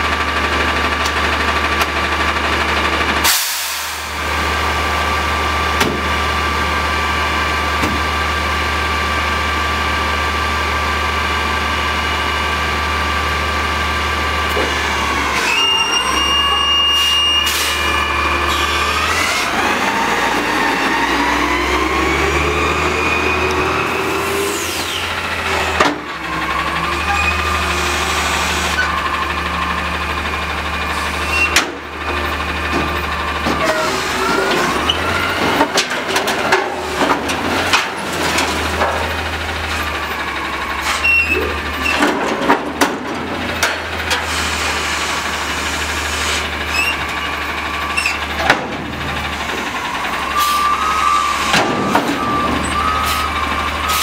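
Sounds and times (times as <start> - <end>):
garbage truck engine revving: 0.0 - 54.0
dumpster clanging bangs: 31.4 - 40.1, 41.1 - 44.3, 46.7 - 54.0.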